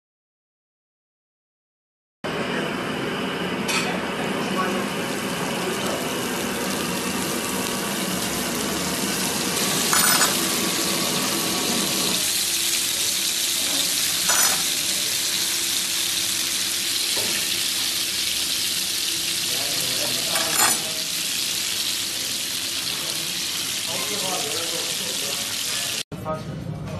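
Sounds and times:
butter and meat sizzling: 0:04.7 - 0:26.0.

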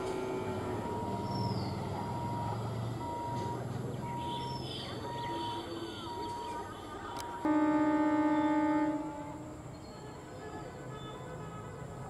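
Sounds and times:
electric train humming: 0:00.0 - 0:03.7
bird chirping: 0:01.2 - 0:01.8.

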